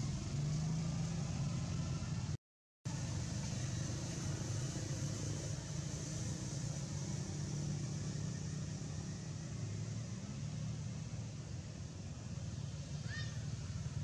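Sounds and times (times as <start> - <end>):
even hiss: 2.9 - 14.0.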